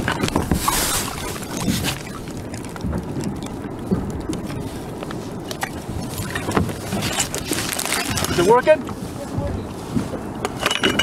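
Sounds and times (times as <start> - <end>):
knocks and clicks from boat gear: 0.0 - 11.0
water lapping against kayak hull: 0.0 - 11.0
hissing splash: 0.5 - 2.6.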